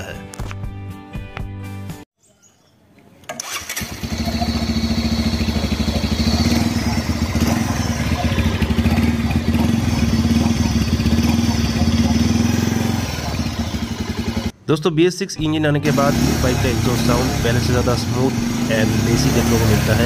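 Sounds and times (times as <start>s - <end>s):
motorcycle engine starting and idling: 3.2s - 14.5s, 15.8s - 20.0s.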